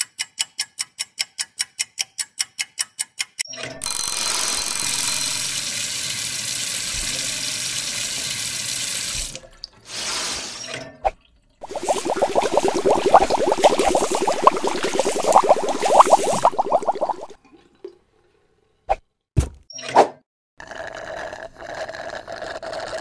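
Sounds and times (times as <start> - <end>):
tap water running into drain: 3.8 - 9.8, 11.6 - 17.4.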